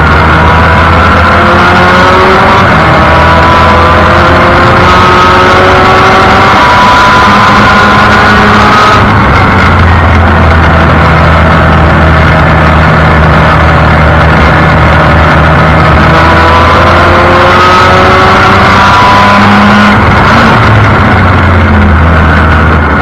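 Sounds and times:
race car engine at speed: 0:00.0 - 0:23.0.

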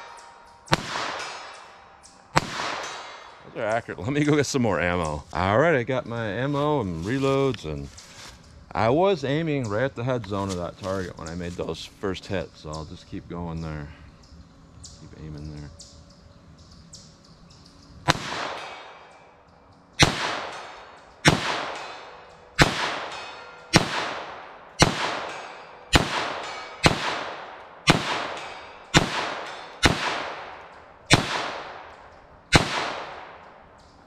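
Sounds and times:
pistol shots with echo: 0:00.0 - 0:03.5, 0:18.1 - 0:19.3, 0:20.0 - 0:33.7.

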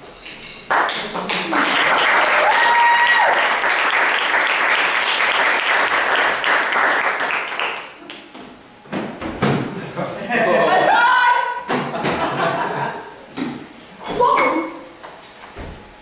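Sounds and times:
audience applauding: 0:00.7 - 0:08.2
short high cheer: 0:01.5 - 0:04.0.

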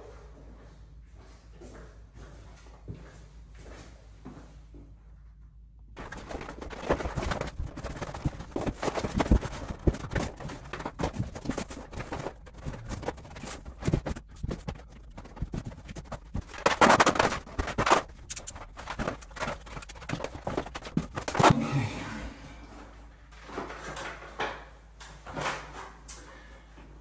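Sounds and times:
wallpaper rustling and crackling: 0:06.0 - 0:21.6, 0:22.7 - 0:27.0.

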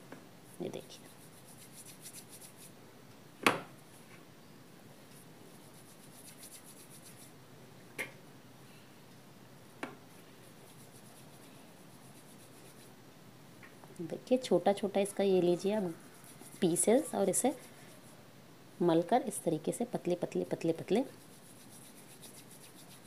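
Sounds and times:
palm rubbing dough on metal: 0:00.6 - 0:02.7, 0:05.5 - 0:07.3, 0:10.4 - 0:12.9, 0:15.4 - 0:18.2, 0:20.7 - 0:23.0.

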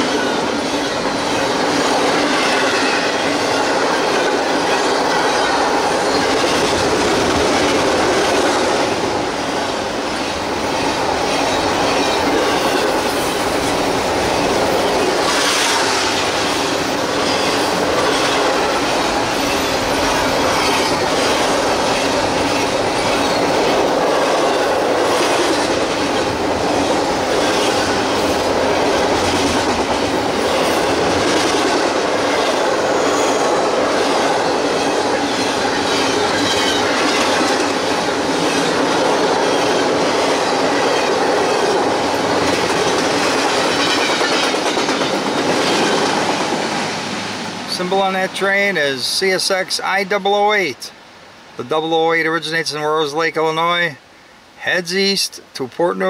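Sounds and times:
freight train rumbling past: 0:00.0 - 0:50.7
wheels clicking over rail joints: 0:33.9 - 0:46.7.

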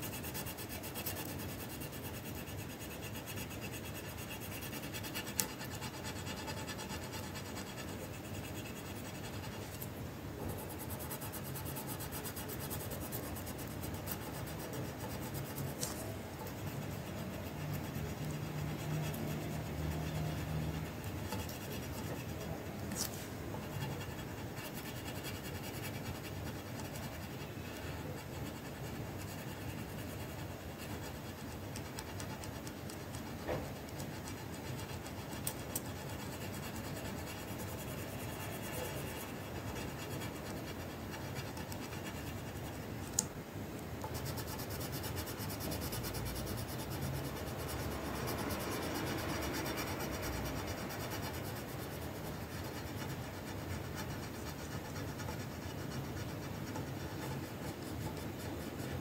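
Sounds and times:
pencil scratching on paper: 0:00.0 - 0:43.2, 0:44.0 - 0:59.0
sharp pencil ticks: 0:00.0 - 0:59.0.

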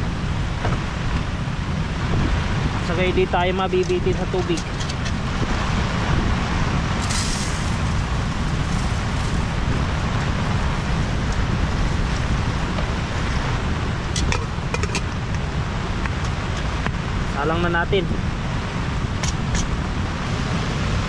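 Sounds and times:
deep rumble: 0:00.0 - 0:21.0
heavy rain: 0:00.0 - 0:21.0
wind: 0:00.0 - 0:21.0
brief hiss: 0:07.0 - 0:07.9.

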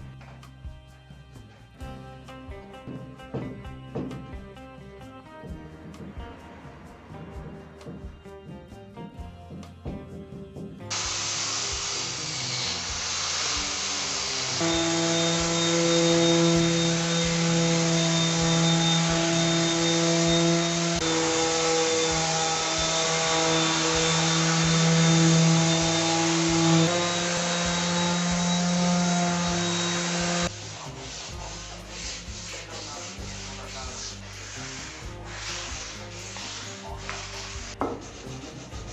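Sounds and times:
soft music: 0:00.0 - 0:38.9
sander hissing on wood: 0:10.6 - 0:38.9
sander motor hum: 0:10.9 - 0:34.0.

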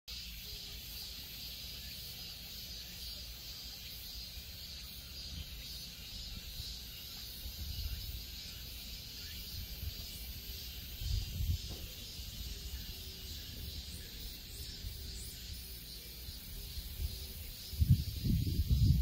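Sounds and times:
high drone of insects: 0:00.1 - 0:19.0
wind rumbling on microphone: 0:06.2 - 0:08.5, 0:09.2 - 0:15.5, 0:16.3 - 0:19.0.

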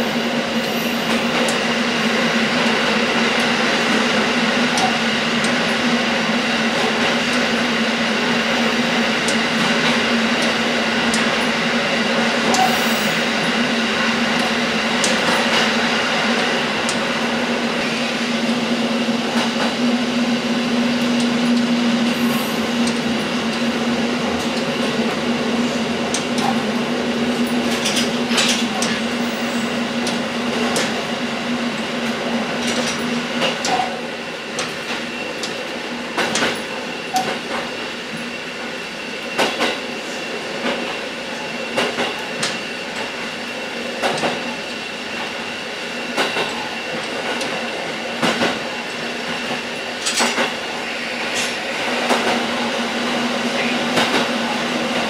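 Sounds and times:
railcar engine drone: 0:00.0 - 0:55.0.

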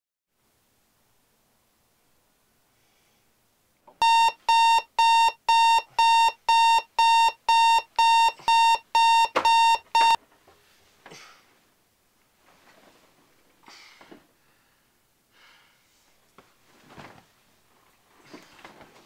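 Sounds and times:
alarm clock beeping: 0:04.0 - 0:10.2.

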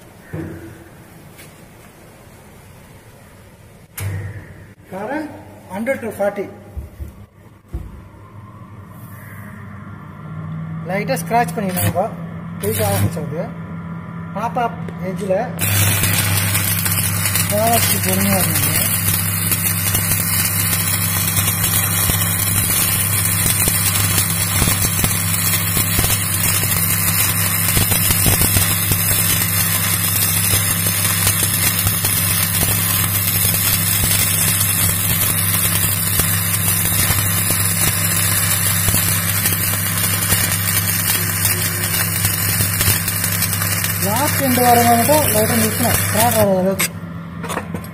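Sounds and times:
steady low hum: 0:00.0 - 0:47.9
welding arc crackling hiss: 0:10.9 - 0:13.3, 0:15.6 - 0:47.0.

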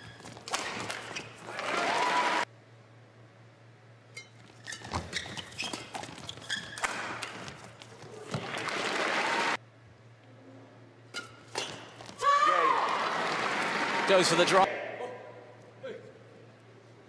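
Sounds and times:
shoe squeaks on court: 0:00.0 - 0:01.5, 0:04.1 - 0:07.8, 0:11.1 - 0:12.1
crowd applauding: 0:01.5 - 0:02.4, 0:08.4 - 0:09.6, 0:12.9 - 0:14.7.

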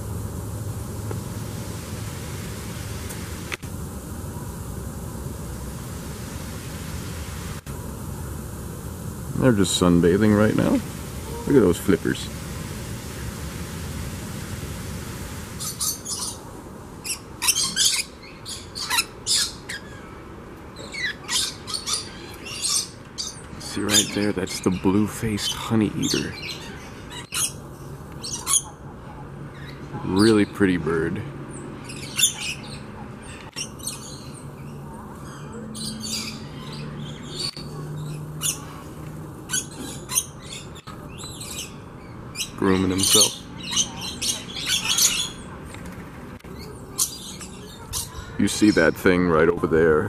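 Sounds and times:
low steady hum: 0:00.0 - 0:17.4
lorikeets squawking: 0:09.4 - 0:12.3, 0:15.5 - 0:16.4, 0:17.0 - 0:20.1, 0:20.8 - 0:28.9, 0:31.6 - 0:45.6, 0:46.5 - 0:49.4.

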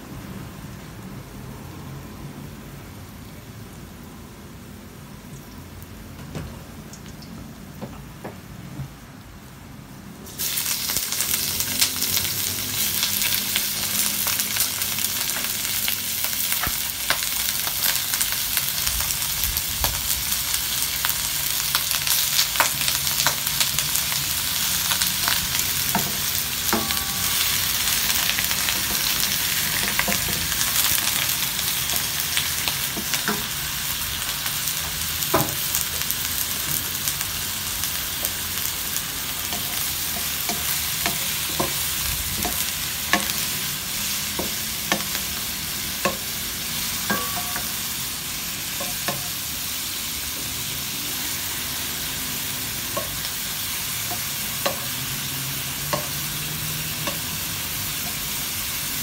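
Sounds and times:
shrimp sizzling in hot oil: 0:10.2 - 0:59.0.

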